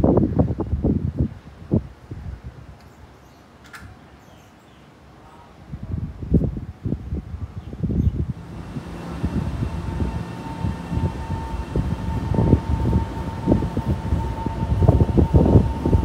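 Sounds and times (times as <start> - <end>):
wind buffeting microphone: 0.0 - 2.9, 5.6 - 16.0
train rumbling: 5.8 - 16.0
high whine: 8.1 - 16.0.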